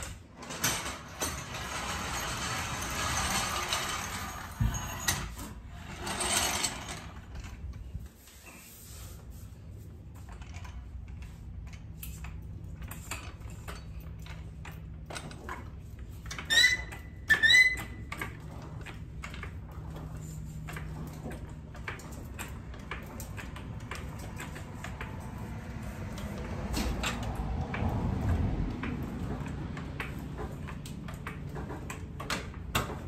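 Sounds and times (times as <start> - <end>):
high rising squeaks: 16.4 - 18.3.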